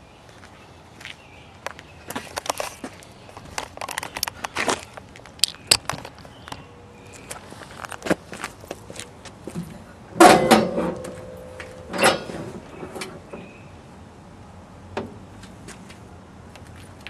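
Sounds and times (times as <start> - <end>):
sharp clunk: 10.2 - 13.5
metal hood clank: 10.2 - 13.6.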